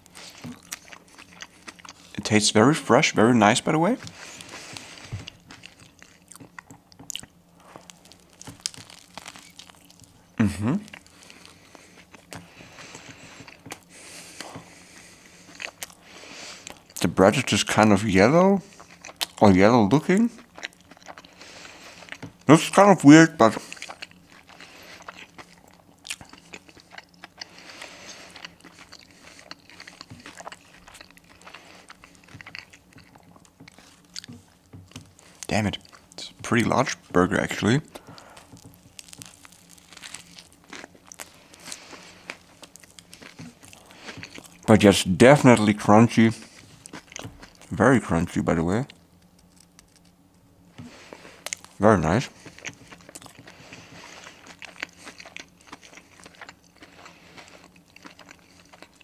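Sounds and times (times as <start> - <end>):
crunchy food being chewed: 0.0 - 2.4, 3.4 - 22.8, 23.4 - 47.9, 48.8 - 59.0.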